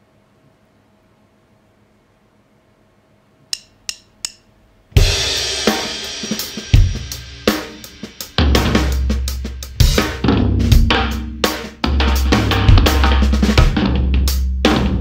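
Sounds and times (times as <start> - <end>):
count-in clicks: 3.5 - 4.5
drum kit groove: 3.6 - 15.0.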